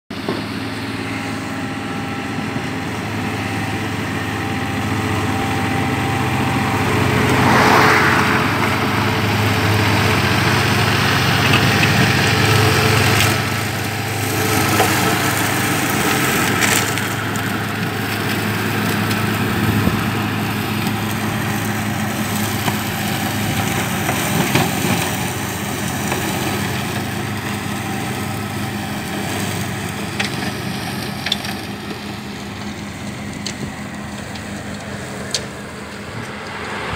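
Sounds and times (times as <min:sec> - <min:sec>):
tractor diesel engine running: 0:00.0 - 0:36.9
flail mower mowing grass: 0:00.1 - 0:36.9.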